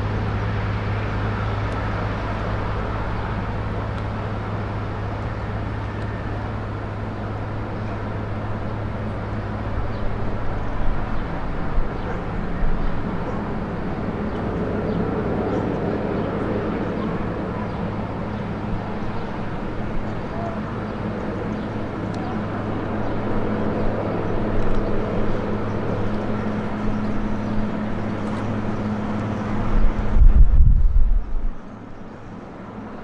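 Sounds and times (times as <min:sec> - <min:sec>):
helicopter rotor drone: 0:00.0 - 0:33.0
wind buffeting microphone: 0:00.0 - 0:33.0.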